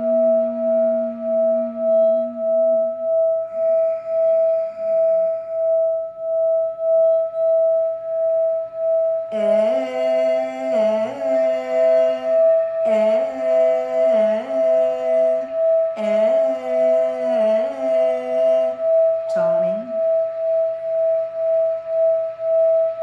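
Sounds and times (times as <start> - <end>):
person humming long notes: 0.0 - 6.0, 9.3 - 21.0
singing bowl tone: 0.0 - 23.0.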